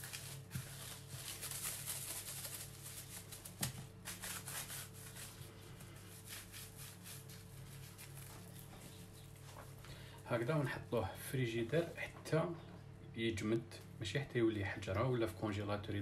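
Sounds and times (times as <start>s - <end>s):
cling film crinkling: 0.0s - 10.0s.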